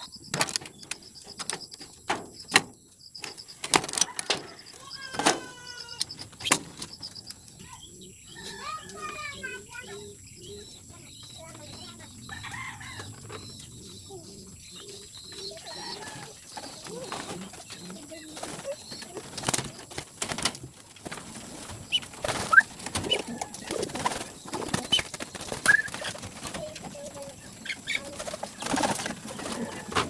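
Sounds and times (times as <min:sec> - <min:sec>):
sharp knocks and clicks: 0:00.2 - 0:04.4
wings flapping: 0:03.2 - 0:07.3, 0:15.2 - 0:30.0
pigeons cooing: 0:03.5 - 0:30.0.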